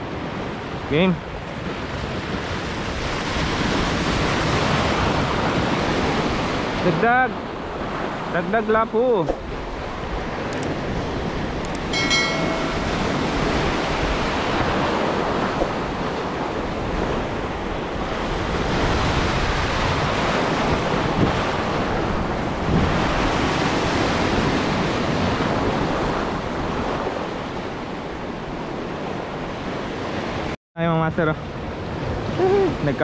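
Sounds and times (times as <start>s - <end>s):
wind buffeting microphone: 0.0s - 8.3s, 9.2s - 30.5s
surf washing over rocks: 0.0s - 33.0s
short electronic chime: 11.9s - 13.4s.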